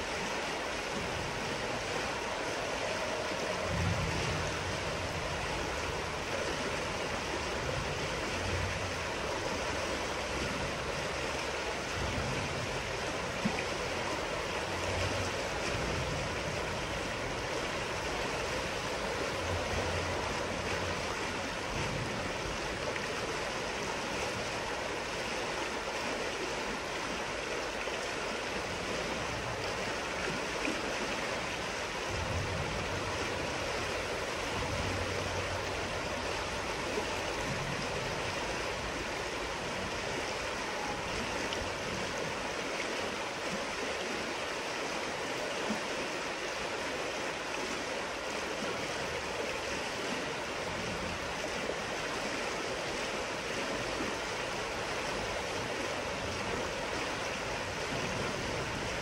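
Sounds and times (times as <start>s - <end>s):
river water babbling: 0.0s - 59.0s.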